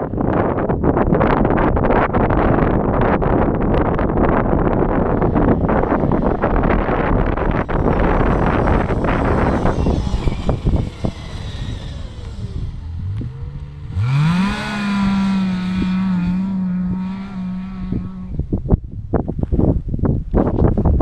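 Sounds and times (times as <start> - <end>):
wind buffeting microphone: 0.0 - 21.0
snowmobile engine revving: 4.1 - 18.6.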